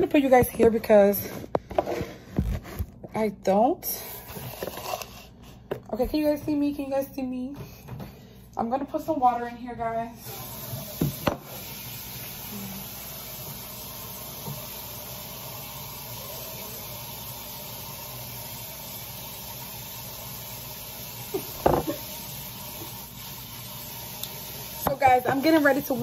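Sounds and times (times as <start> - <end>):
tap water running into pot: 10.2 - 26.0.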